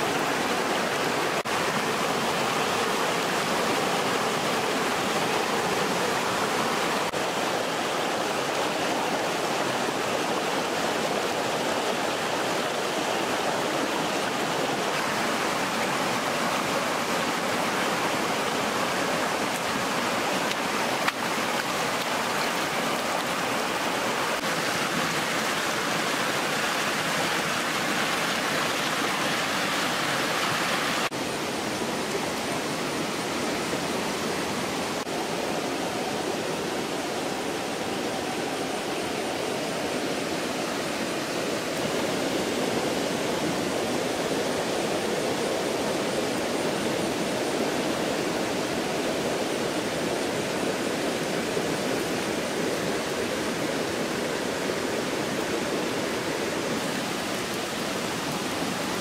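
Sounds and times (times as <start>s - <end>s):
water rushing over rocks: 0.0s - 59.0s.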